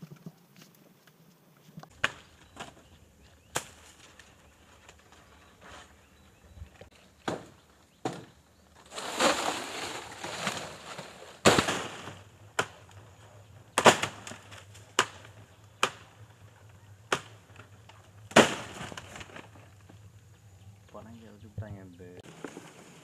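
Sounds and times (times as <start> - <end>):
rustling leaves: 0.0 - 23.0
sharp chopping cracks: 3.5 - 3.9, 7.2 - 8.3, 11.4 - 13.0, 13.7 - 16.2, 17.1 - 17.7, 18.3 - 19.4.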